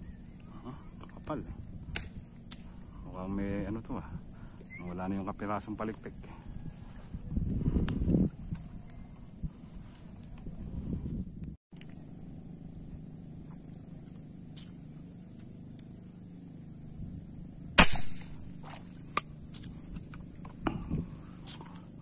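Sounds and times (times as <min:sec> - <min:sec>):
speargun firing snap: 0:01.9 - 0:02.7, 0:17.8 - 0:18.4.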